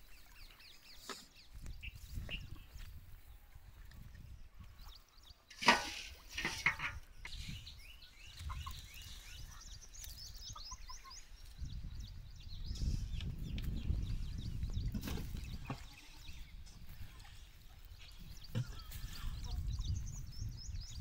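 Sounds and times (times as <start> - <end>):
fowl clucking and chirping: 8.3 - 11.3.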